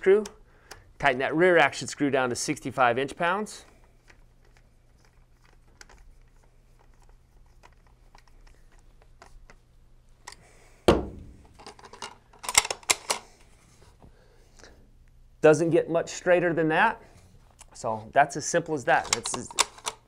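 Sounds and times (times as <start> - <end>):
heavy knock: 10.9 - 11.4
sharp clicks and rattles: 11.1 - 13.2, 19.0 - 20.0.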